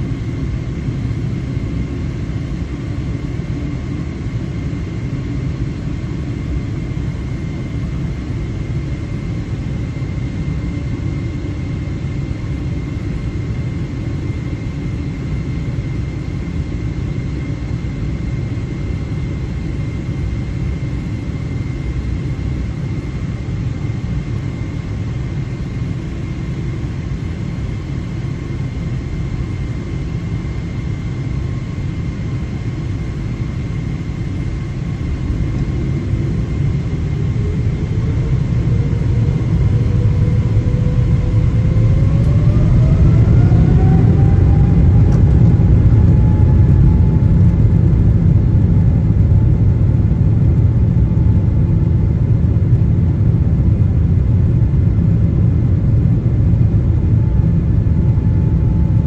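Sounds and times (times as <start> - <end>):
jet engines rumbling and whining: 0.0 - 59.0.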